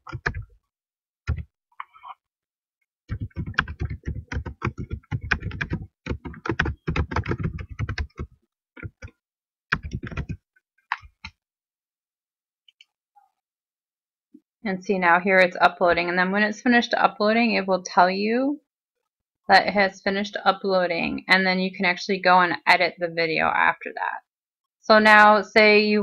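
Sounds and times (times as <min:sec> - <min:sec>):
typing on computer keyboard: 0:00.0 - 0:00.5, 0:03.1 - 0:11.4.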